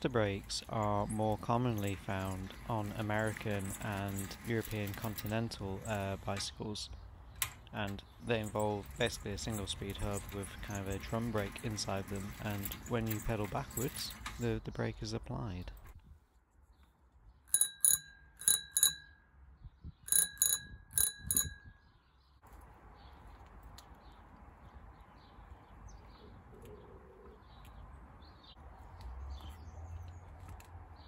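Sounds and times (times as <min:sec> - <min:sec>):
bicycle bell dings: 0:17.5 - 0:19.4, 0:20.1 - 0:21.9.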